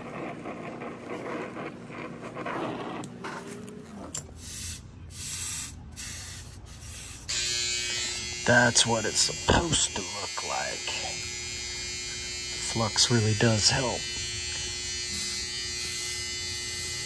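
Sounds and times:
steady buzz: 4.7 - 17.0.

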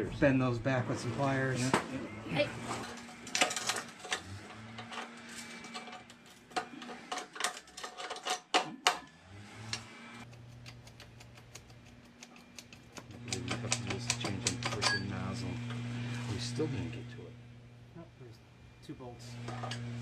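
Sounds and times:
low steady hum: 10.2 - 20.0.

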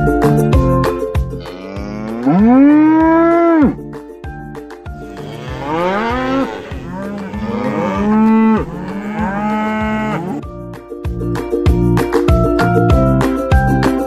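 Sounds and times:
soft background music: 0.0 - 14.0
cow mooing: 1.4 - 3.8, 5.0 - 10.4.

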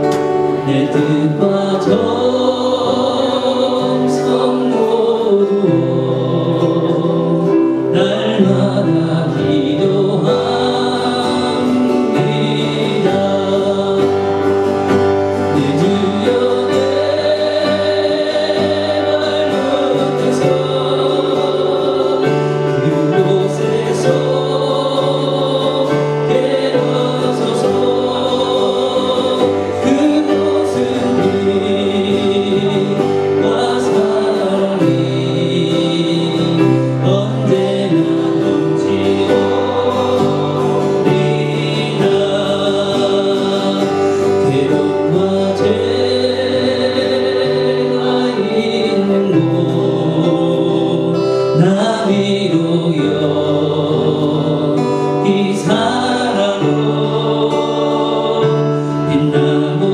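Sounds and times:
acoustic guitar strumming: 0.0 - 59.9
man singing: 0.0 - 59.9
voices singing along: 0.0 - 59.9.

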